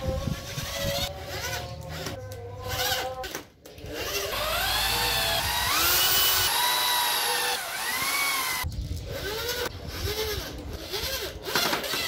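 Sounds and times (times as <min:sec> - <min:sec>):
electric drill boring into wood: 0:03.9 - 0:12.0.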